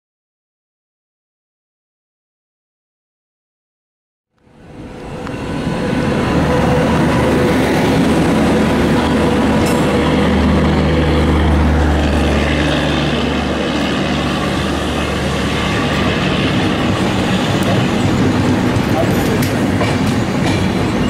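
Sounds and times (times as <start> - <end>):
train passing at speed: 4.4 - 21.0.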